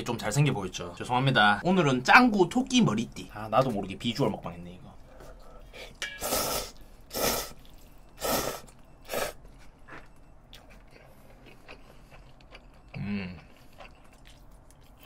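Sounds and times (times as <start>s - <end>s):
faint chewing: 6.7s - 15.0s.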